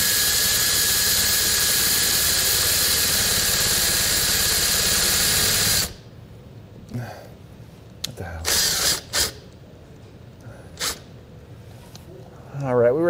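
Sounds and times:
cordless drill motor whining: 0:00.0 - 0:06.0, 0:08.5 - 0:09.4.

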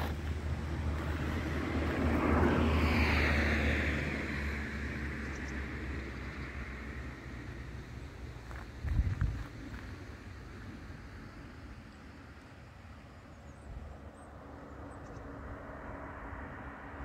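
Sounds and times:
vehicle passing by: 0:00.0 - 0:08.5, 0:14.2 - 0:17.0.

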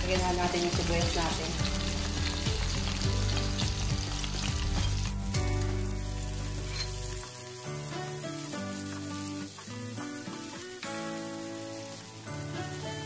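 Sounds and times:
garlic and onion sizzling in oil: 0:00.0 - 0:13.0
wooden spatula stirring in wok: 0:06.3 - 0:13.0.

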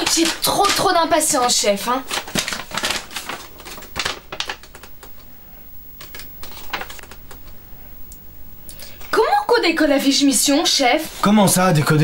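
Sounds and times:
paper rustling and crackling: 0:00.0 - 0:05.3, 0:06.0 - 0:07.6.

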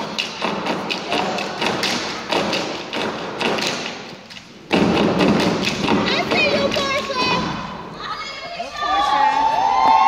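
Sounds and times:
hand claps: 0:00.0 - 0:04.4
rhythmic foot stomps: 0:00.0 - 0:07.9.

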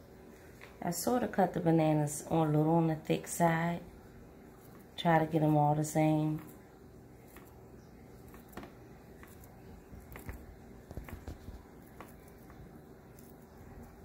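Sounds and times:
knife slicing banana: 0:07.2 - 0:13.6.

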